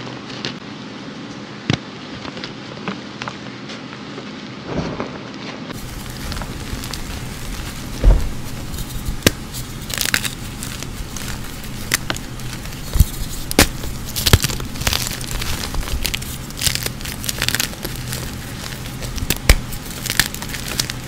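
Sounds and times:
hands crushing chalk: 0:05.8 - 0:21.0.

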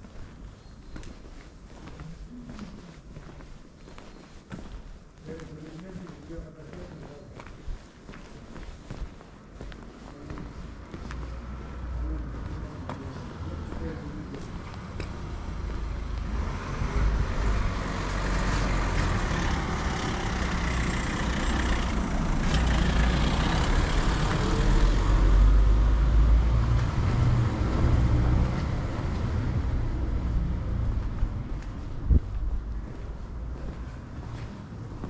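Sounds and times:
motor vehicle passing: 0:10.3 - 0:35.0.

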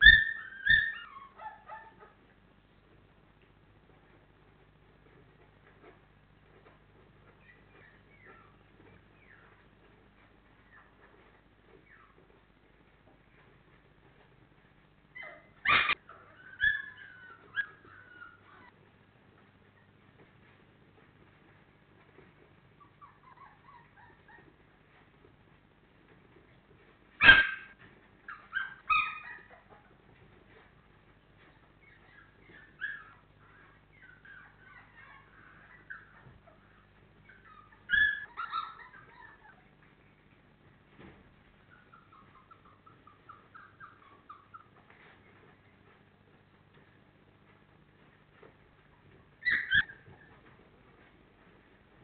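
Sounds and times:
puppies yelping and whimpering: 0:00.0 - 0:02.2, 0:07.2 - 0:09.7, 0:15.1 - 0:18.8, 0:22.8 - 0:24.6, 0:27.2 - 0:30.3, 0:31.4 - 0:40.2, 0:41.6 - 0:45.9, 0:48.9 - 0:50.6.

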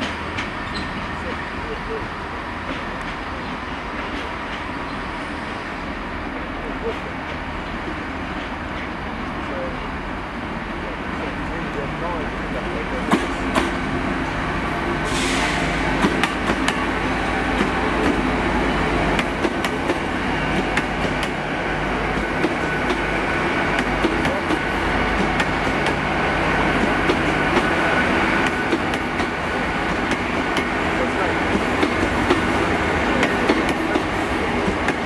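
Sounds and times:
train rumble: 0:00.0 - 0:35.0
train wheels clicking over rail joints: 0:13.0 - 0:14.0, 0:15.0 - 0:18.4, 0:19.1 - 0:21.4, 0:22.1 - 0:35.0
rush of hiss: 0:14.8 - 0:16.0.

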